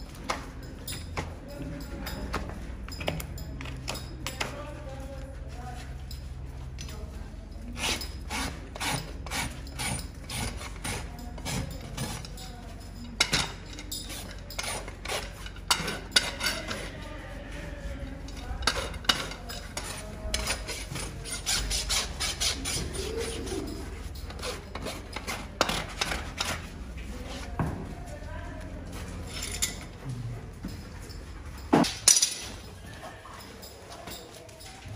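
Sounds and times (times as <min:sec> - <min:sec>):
rasp filing a hoof: 0:07.7 - 0:12.4, 0:14.0 - 0:26.8.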